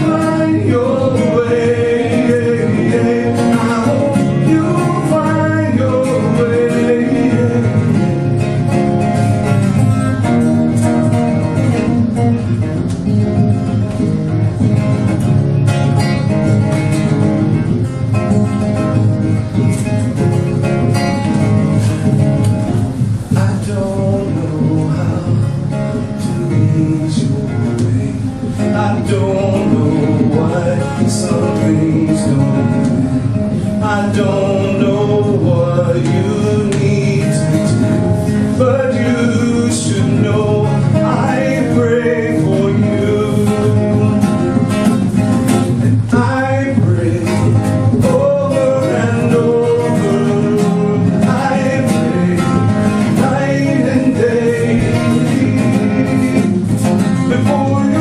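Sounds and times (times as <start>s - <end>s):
man singing: 0.0s - 10.3s, 23.1s - 58.0s
guitar: 0.0s - 58.0s.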